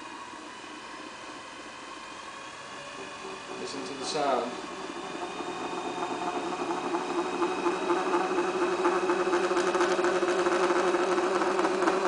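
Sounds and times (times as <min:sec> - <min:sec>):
potter's wheel hum: 0:00.0 - 0:12.0.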